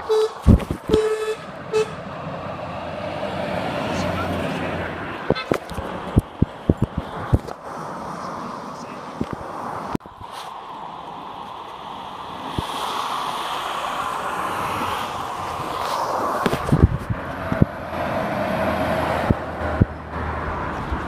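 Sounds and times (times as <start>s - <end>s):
road traffic noise: 0.0s - 21.0s
wind thumps on microphone: 0.4s - 1.1s, 5.2s - 7.6s, 12.4s - 21.0s.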